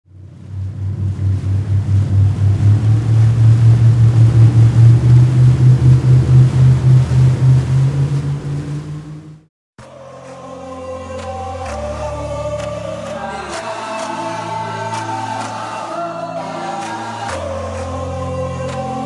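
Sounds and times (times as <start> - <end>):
motorboat engine humming: 0.1 - 9.5.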